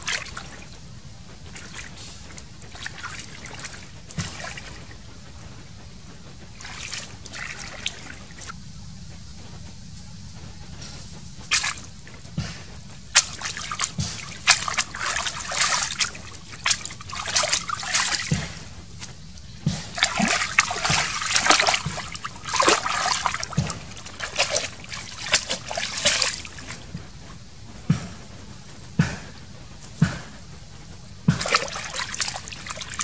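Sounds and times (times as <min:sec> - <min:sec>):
hands splashing in water: 0:00.0 - 0:00.8, 0:01.5 - 0:04.9, 0:06.5 - 0:08.5, 0:11.5 - 0:11.9, 0:13.1 - 0:19.1, 0:19.8 - 0:27.0, 0:31.3 - 0:33.0
water trickling and dripping: 0:00.0 - 0:05.0, 0:06.4 - 0:08.6, 0:13.0 - 0:28.0, 0:31.0 - 0:33.0.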